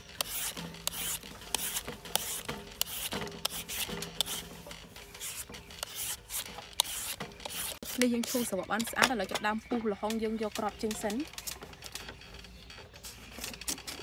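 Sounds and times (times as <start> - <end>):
peeler scraping fruit: 0.0 - 9.3.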